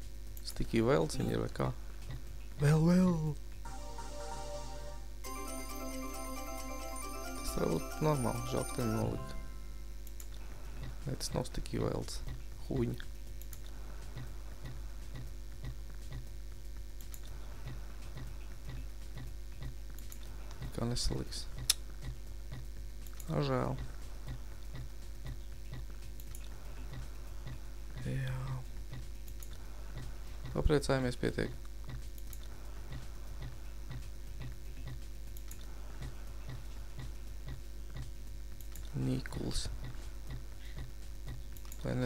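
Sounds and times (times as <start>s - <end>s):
low steady hum: 0.0s - 42.0s
slot game ticking: 2.6s - 9.8s
steady ticking: 12.2s - 20.8s, 21.5s - 30.7s, 31.4s - 42.0s.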